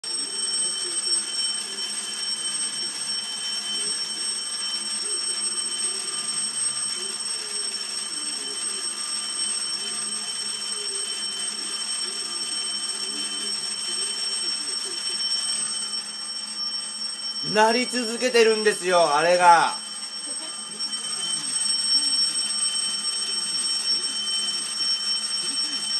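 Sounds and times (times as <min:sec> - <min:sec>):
alarm clock ringing: 0:00.0 - 0:25.9.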